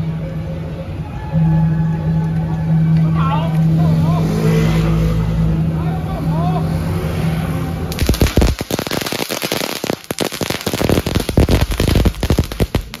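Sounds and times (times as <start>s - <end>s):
firecrackers crackling: 7.9s - 13.0s.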